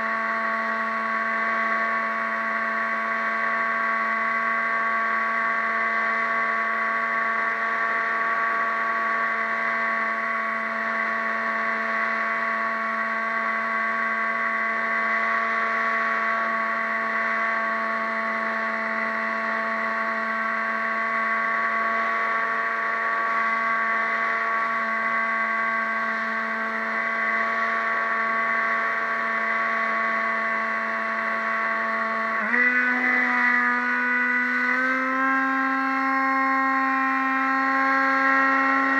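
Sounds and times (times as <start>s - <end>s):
model boat motor whining: 0.0s - 38.9s.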